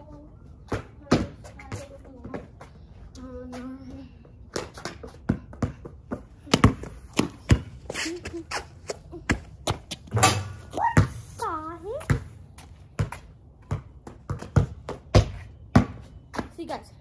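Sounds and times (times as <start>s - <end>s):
basketball bouncing on concrete: 0.7s - 2.5s, 4.5s - 8.5s, 9.2s - 16.6s.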